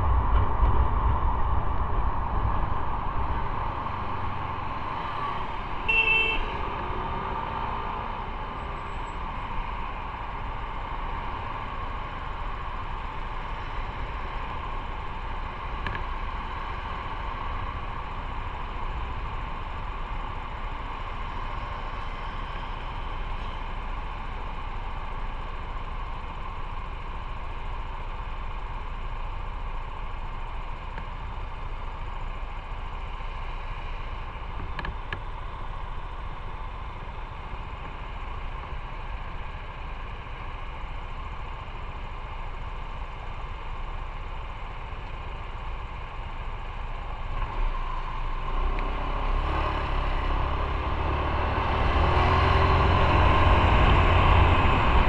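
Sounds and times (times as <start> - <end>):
road rush: 0.0 - 55.0
vehicle horn toot: 5.8 - 6.8
motorcycle engine: 47.3 - 55.0.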